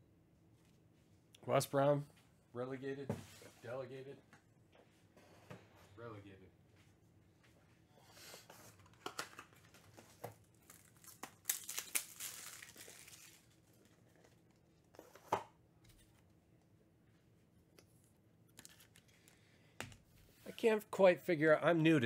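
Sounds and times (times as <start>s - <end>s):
wrapper packaging crinkling: 10.5s - 14.4s.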